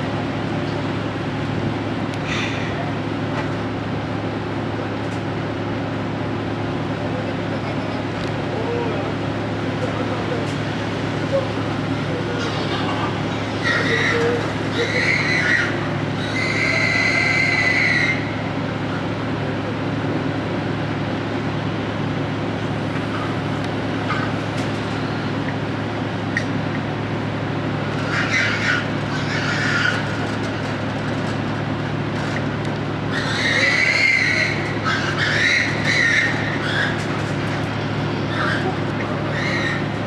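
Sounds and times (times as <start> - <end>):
truck engine idling: 0.0 - 40.0
pigs squealing: 12.2 - 18.4, 28.0 - 30.3, 33.0 - 40.0.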